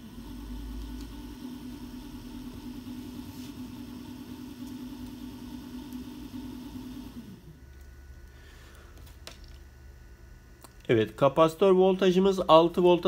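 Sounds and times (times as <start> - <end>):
small motor humming: 0.0 - 9.0.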